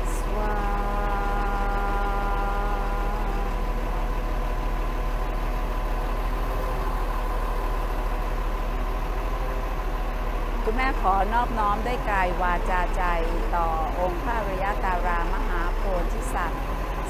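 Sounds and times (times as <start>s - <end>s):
voice chanting long note: 0.0s - 4.8s
crane engine running: 0.0s - 17.0s.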